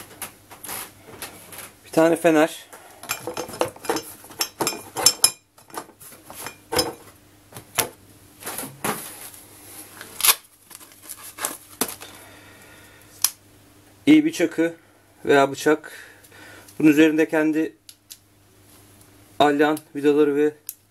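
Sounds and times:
bottles clinking and knocking: 3.0s - 7.1s.

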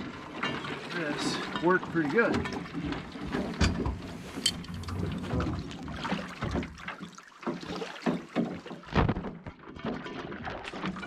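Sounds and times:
water splashing and sloshing: 0.0s - 11.0s
metal trap knocking and rattling: 4.4s - 5.1s.

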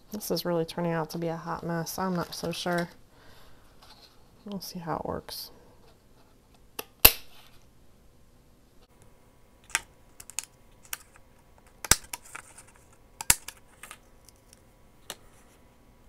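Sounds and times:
faint paper rustling: 10.8s - 13.0s, 13.6s - 15.6s.

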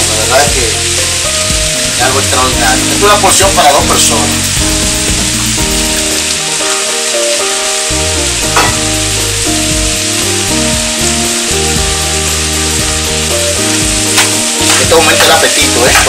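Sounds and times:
food sizzling in a pan: 0.0s - 16.0s.

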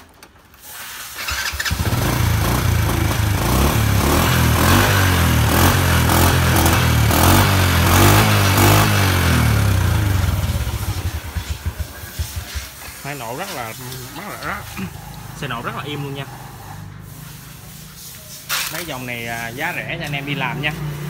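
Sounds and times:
motorcycle engine starting and running: 0.0s - 21.0s.

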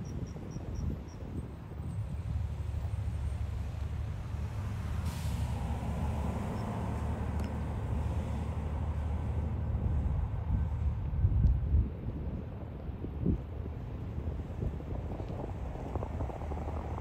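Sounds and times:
wind buffeting microphone: 0.0s - 17.0s
short hiss: 5.0s - 5.5s.

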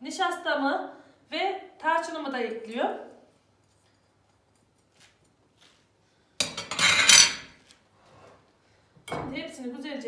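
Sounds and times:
kitchenware clattering on worktop: 6.4s - 7.6s.

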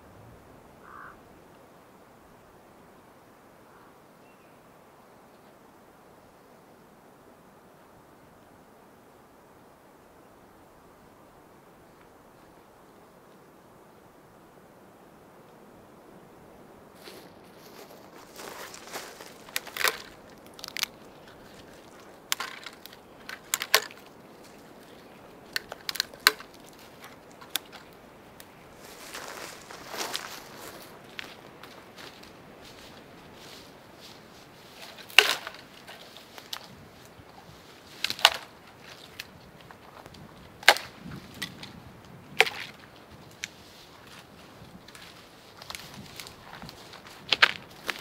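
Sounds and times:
dry twigs snapping: 18.4s - 33.5s, 34.8s - 48.0s.

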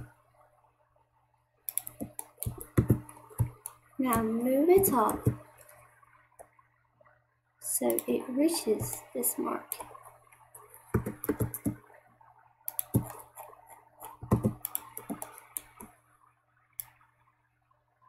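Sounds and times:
keyboard and mouse clicks: 1.7s - 5.4s, 7.9s - 8.2s, 8.8s - 10.0s, 10.6s - 11.8s, 12.7s - 16.0s.

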